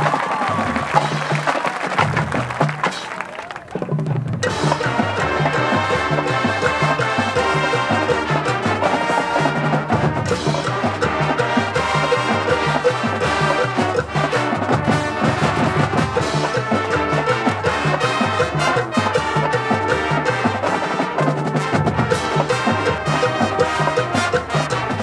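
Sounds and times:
marching band playing: 0.0s - 25.0s.

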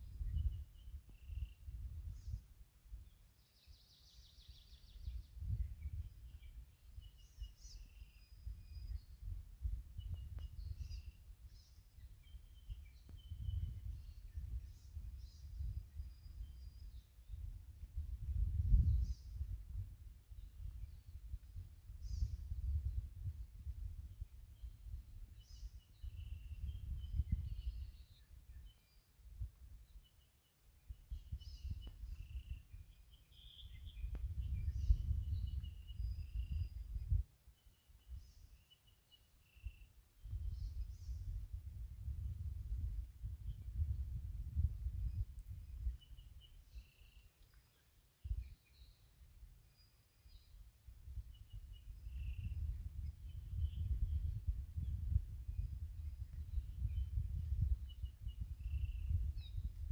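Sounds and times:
birds singing: 0.0s - 19.6s, 20.3s - 42.8s, 43.4s - 59.9s
wind rumble on microphone: 0.0s - 59.9s
birds chirping and whistling: 3.6s - 9.2s, 24.6s - 29.0s, 31.0s - 37.2s, 45.0s - 47.3s, 48.3s - 50.6s, 51.3s - 59.7s.

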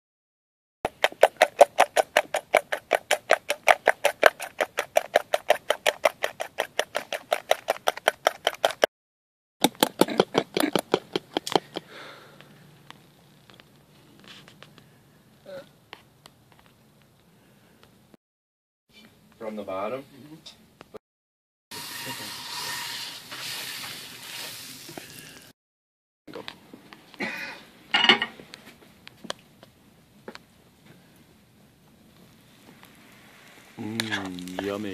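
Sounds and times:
whisk clicking against metal pot: 0.9s - 8.9s
hot oil sizzling in a skillet: 21.7s - 25.5s.

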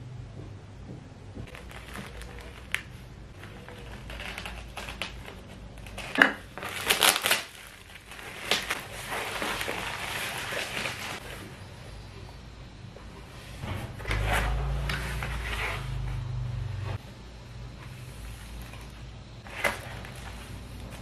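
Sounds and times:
sharp plastic crackles: 1.4s - 11.4s, 18.4s - 21.0s
plastic mailer crinkling: 1.5s - 11.6s, 18.1s - 21.0s.

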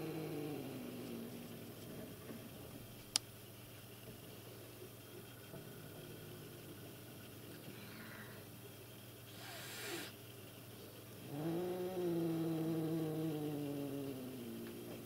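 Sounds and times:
cat growling yowl: 0.0s - 1.4s, 11.2s - 15.0s
cat hissing: 9.3s - 10.2s.

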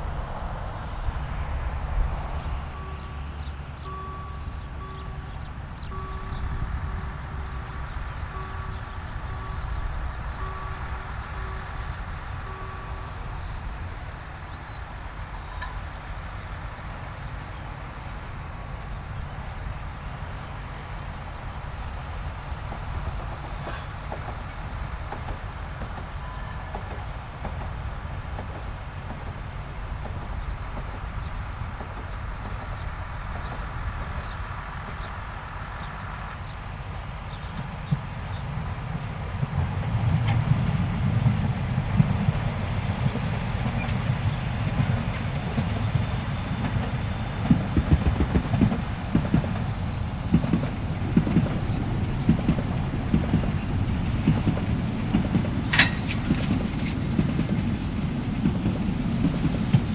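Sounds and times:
steam train rumbling: 0.0s - 59.9s
wheels clicking over rail joints: 36.4s - 59.9s.

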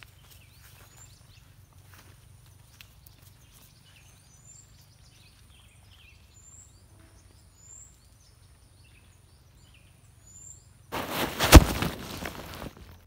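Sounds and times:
bird chirps: 0.0s - 10.8s.

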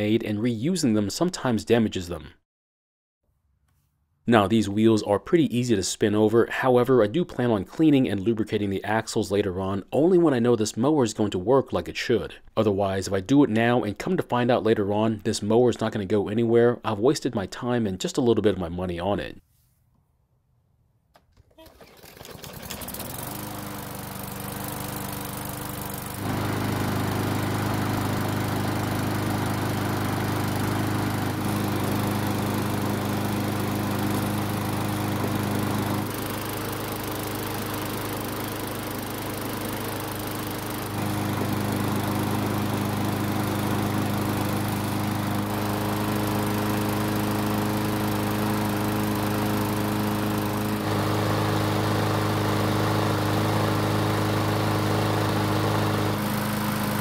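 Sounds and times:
lawn mower engine running: 21.6s - 57.0s.

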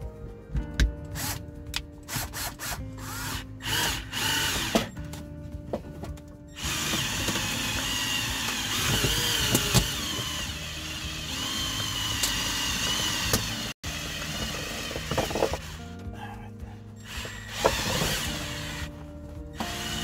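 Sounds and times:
cordless drill whining: 2.2s - 5.0s, 6.6s - 15.8s, 17.0s - 18.9s, 19.6s - 20.0s.

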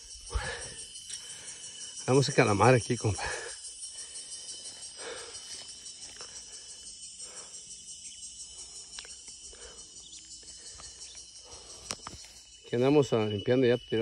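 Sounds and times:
insect chorus shrilling: 0.0s - 14.0s
faint clicks: 11.8s - 12.3s.

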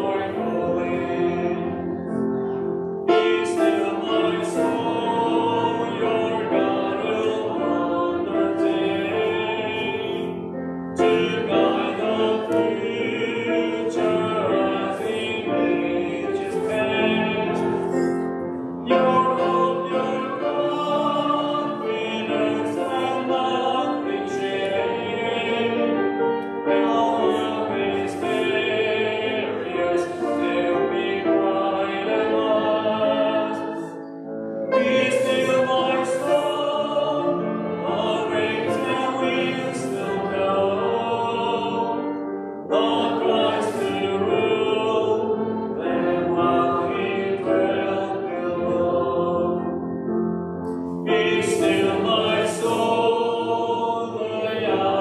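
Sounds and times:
congregation singing a hymn: 0.0s - 55.0s
keyboard accompaniment: 0.0s - 55.0s.

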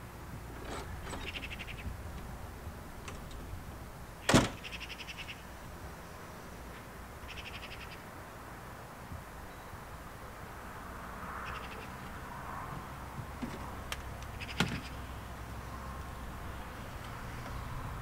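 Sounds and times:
bird rattling calls: 1.1s - 1.8s.

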